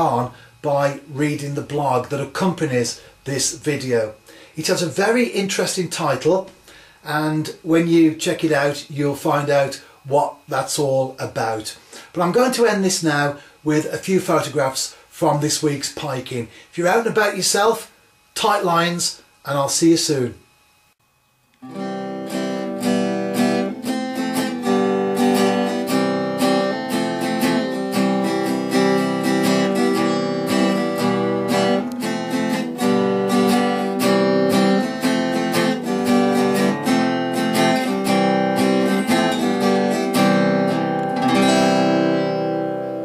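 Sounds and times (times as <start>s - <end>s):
acoustic guitar plucking: 21.6s - 43.0s.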